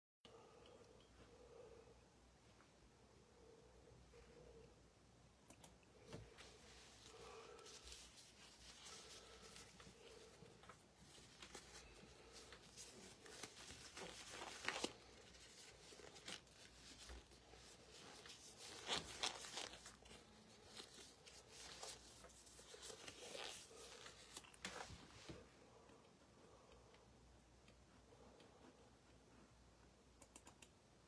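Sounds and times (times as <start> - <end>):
faint rustling: 6.0 - 26.6.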